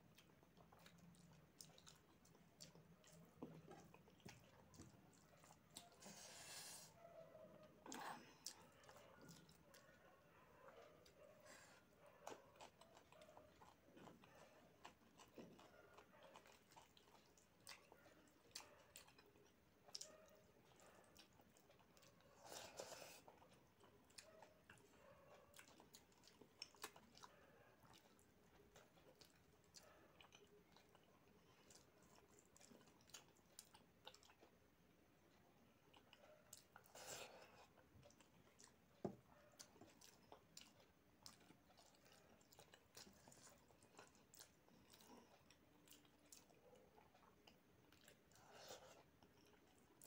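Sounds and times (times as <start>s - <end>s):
person chewing food: 0.0s - 7.0s, 7.6s - 50.0s.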